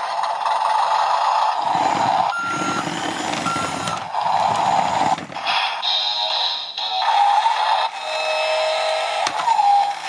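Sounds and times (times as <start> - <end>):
toy engine sound effect: 0.4 - 10.0
toy drive motors whirring: 1.5 - 5.5, 7.1 - 10.0
reversing beeps: 2.2 - 4.0.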